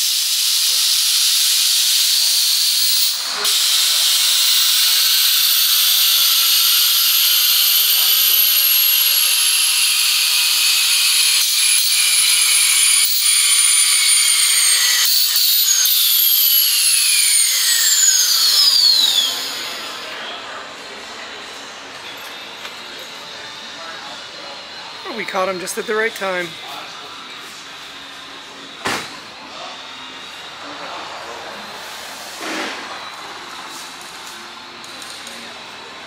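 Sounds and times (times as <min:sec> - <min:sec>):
falling whistle: 0:14.1 - 0:20.4.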